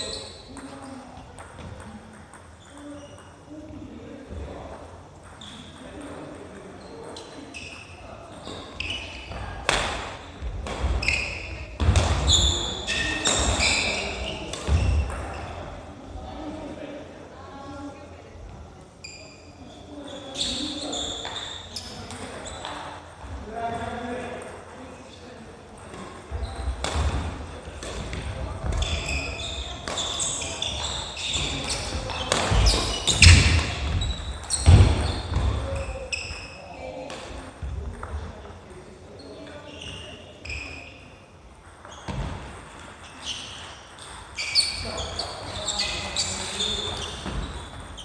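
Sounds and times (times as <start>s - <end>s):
shoes squeaking on floor: 0.0s - 0.7s, 1.4s - 3.5s, 5.2s - 5.8s, 6.8s - 15.6s, 19.0s - 23.1s, 25.8s - 37.1s, 39.2s - 48.0s
rackets hitting shuttlecock: 9.3s - 15.4s, 25.9s - 29.2s, 29.8s - 36.5s.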